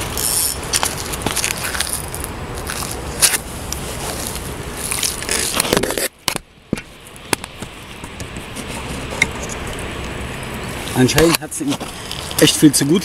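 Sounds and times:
sleeve rubbing microphone: 7.8 - 9.7.

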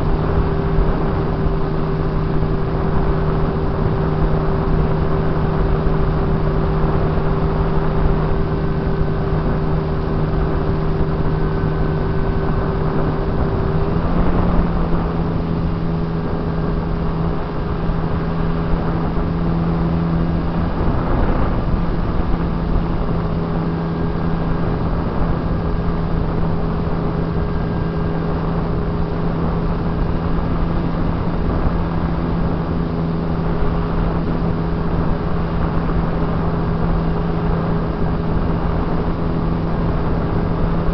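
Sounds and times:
airflow rushing: 0.0 - 40.9
model airplane motor hum: 0.0 - 40.9.

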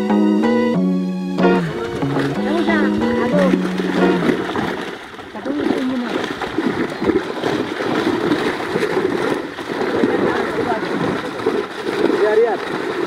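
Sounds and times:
fish splashing in a net: 1.8 - 13.0.

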